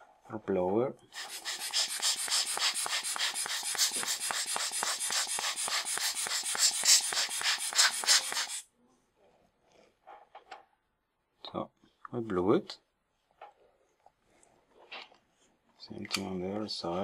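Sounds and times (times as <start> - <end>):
air blower hissing puffs: 1.1 - 8.6.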